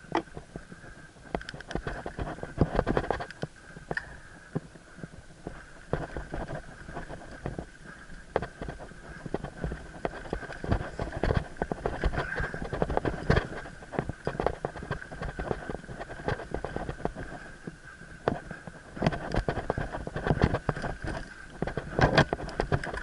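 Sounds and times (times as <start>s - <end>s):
bike frame clattering over bumps: 5.5s - 17.5s.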